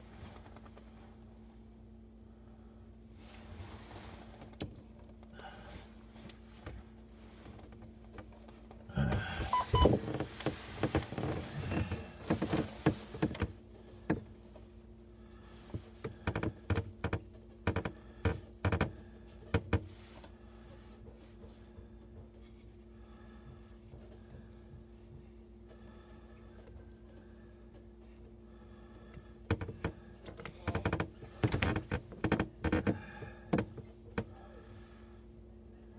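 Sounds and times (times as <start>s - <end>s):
low hum: 0.0s - 15.7s.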